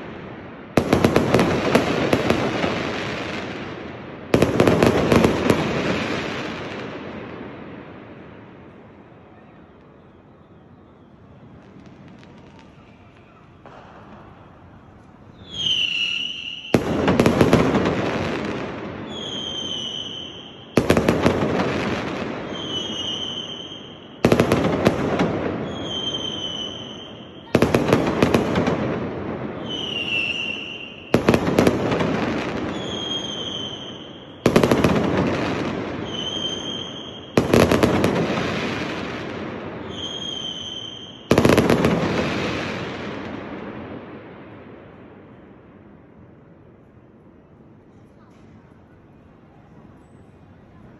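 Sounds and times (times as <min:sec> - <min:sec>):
firework crackling: 0:00.0 - 0:47.0
firework whistling as it climbs: 0:09.1 - 0:28.5, 0:29.5 - 0:43.0
firework bang: 0:11.5 - 0:19.9.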